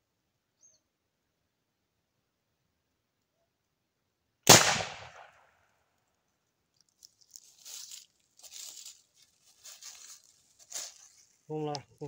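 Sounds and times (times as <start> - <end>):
shotgun shot: 4.5 - 5.4
faint crunching rustles: 6.0 - 12.0.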